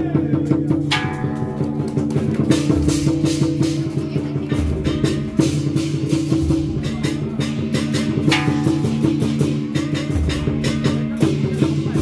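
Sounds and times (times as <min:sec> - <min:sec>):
loud music with fast drum beat: 0:00.0 - 0:12.0
cymbal crash: 0:04.6 - 0:12.0.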